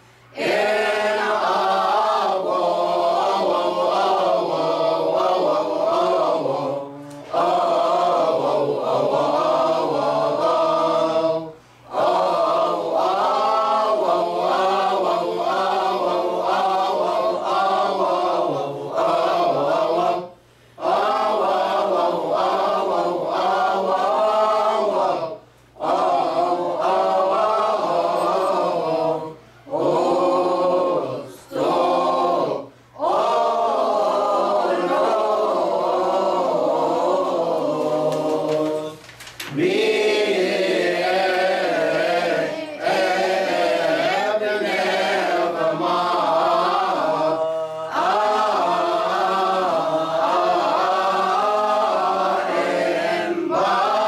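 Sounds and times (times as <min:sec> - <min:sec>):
choir singing a hymn unaccompanied: 0:00.0 - 0:54.0.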